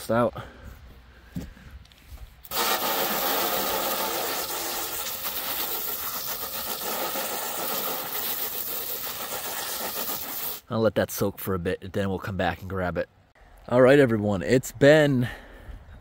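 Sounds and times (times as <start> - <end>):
hose water spraying into metal pan: 2.5 - 10.6.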